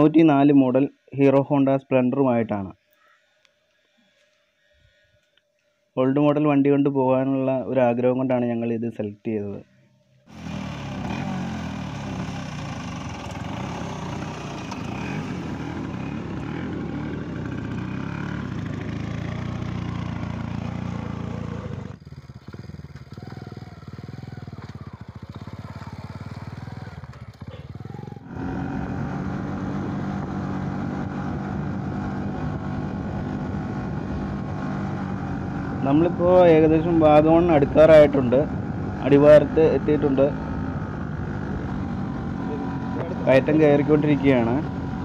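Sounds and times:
motorcycle engine uneven idle: 0:10.3 - 0:28.3
scooter engine running: 0:10.3 - 0:36.4, 0:37.0 - 0:45.0.

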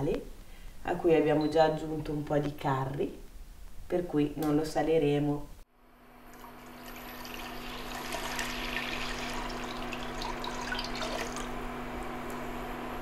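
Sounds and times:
liquid pouring into metal pot: 0:06.3 - 0:11.6.

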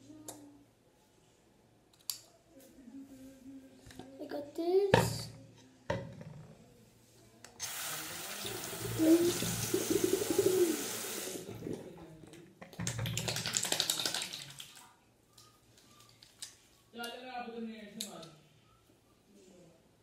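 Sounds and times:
water running and splashing: 0:07.6 - 0:11.9, 0:12.9 - 0:14.9
crackly water spatters: 0:12.8 - 0:15.0.

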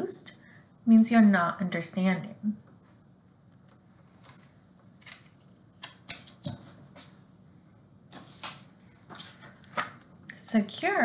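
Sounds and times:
paper rustling: 0:04.0 - 0:07.2, 0:08.1 - 0:10.1.

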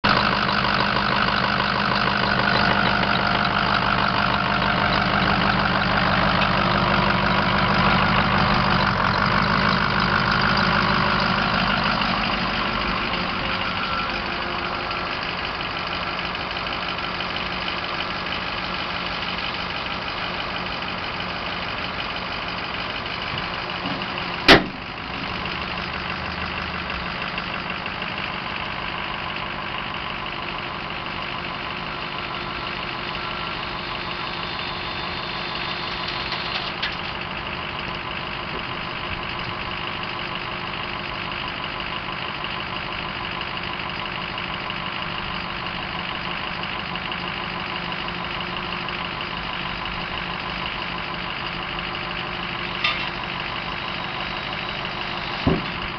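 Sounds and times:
diesel truck engine idling: 0:00.0 - 0:55.9
sharp clunk: 0:23.9 - 0:24.9, 0:52.8 - 0:53.1, 0:55.4 - 0:55.8.

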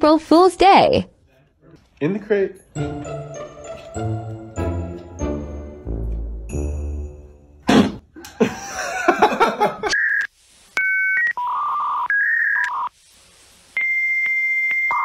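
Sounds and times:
electronic telephone beeps: 0:09.9 - 0:12.9, 0:13.8 - 0:15.0.

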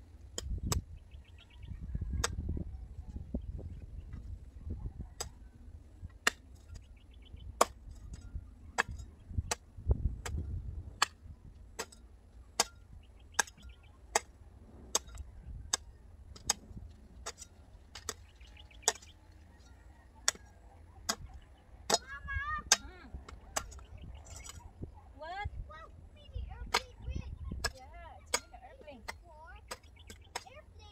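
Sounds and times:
hoes chopping stony soil: 0:00.2 - 0:00.9, 0:06.0 - 0:24.6, 0:26.6 - 0:27.0, 0:27.6 - 0:30.7
bird chirping: 0:00.9 - 0:05.6, 0:06.7 - 0:07.6, 0:12.9 - 0:14.2, 0:17.6 - 0:22.4, 0:23.1 - 0:25.2, 0:29.7 - 0:30.5.

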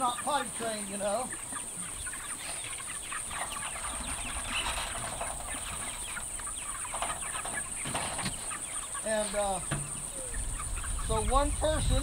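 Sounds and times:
chickens clucking and peeping: 0:00.0 - 0:12.0.

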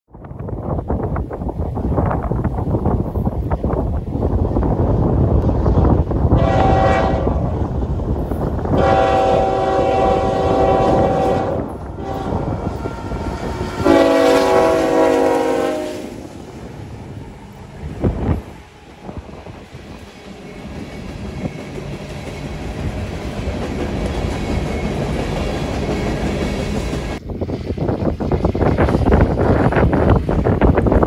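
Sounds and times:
diesel locomotives rumbling past: 0:00.3 - 0:31.0
locomotive air horn blasts: 0:06.3 - 0:07.5, 0:08.7 - 0:16.2.

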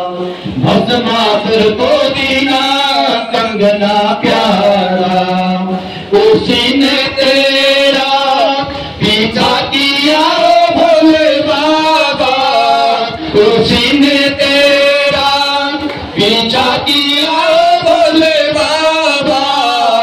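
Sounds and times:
group chanting: 0:06.2 - 0:20.0.

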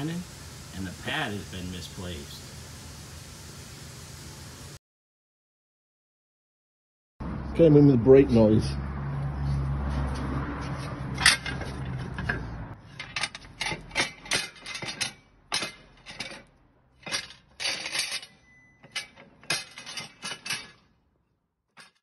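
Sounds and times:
brake metal grinding: 0:11.1 - 0:21.0.

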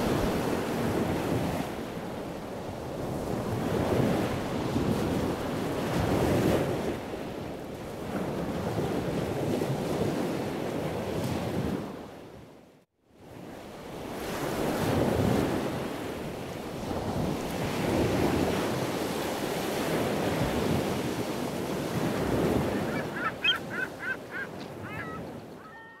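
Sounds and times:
wind and sea rushing: 0:00.0 - 0:12.6, 0:13.2 - 0:26.0
wind buffeting microphone: 0:19.8 - 0:26.0
short high calls: 0:22.7 - 0:26.0.

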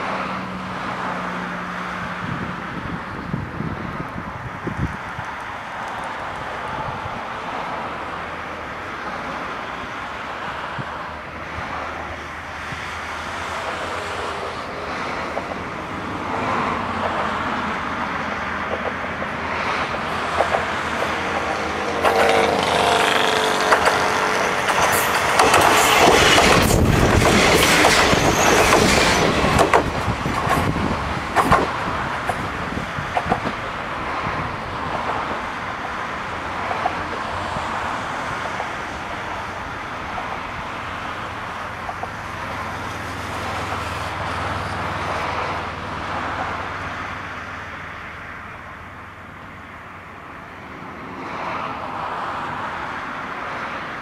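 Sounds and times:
cars passing on road: 0:00.0 - 0:54.0
diesel railcar passing: 0:00.0 - 0:54.0
wheels clicking on rails: 0:18.6 - 0:36.0.

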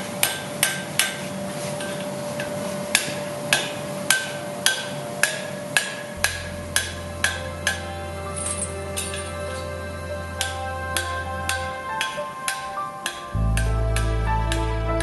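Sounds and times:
hammer striking metal on anvil: 0:00.2 - 0:09.7, 0:10.4 - 0:14.6.

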